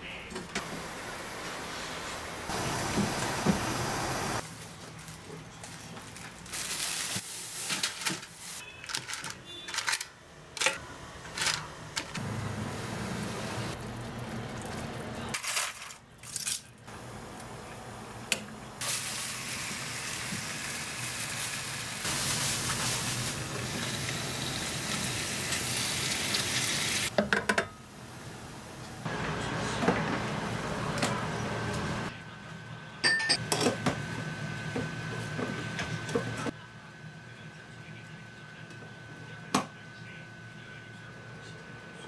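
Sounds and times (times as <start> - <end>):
plastic bag rustling: 4.4 - 10.0
meat sizzling in a frying pan: 18.8 - 27.1.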